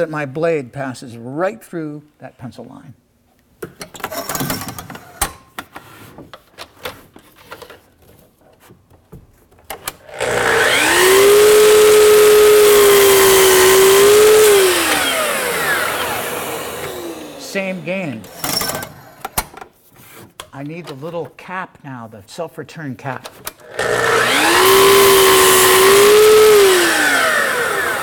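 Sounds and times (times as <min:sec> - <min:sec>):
saw blade winding down: 0:10.0 - 0:19.2, 0:23.6 - 0:28.0
miter saw motor whining: 0:10.1 - 0:18.9, 0:23.6 - 0:28.0.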